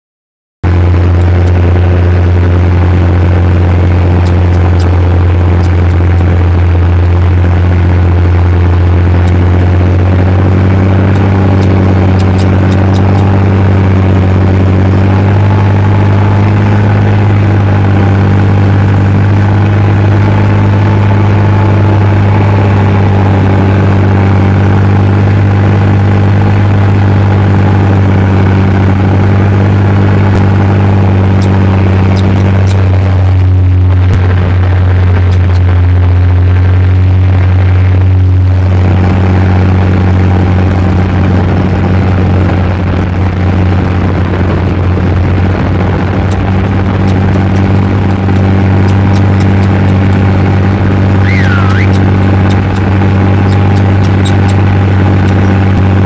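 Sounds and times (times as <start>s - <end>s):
tractor diesel engine running: 0.6s - 56.0s.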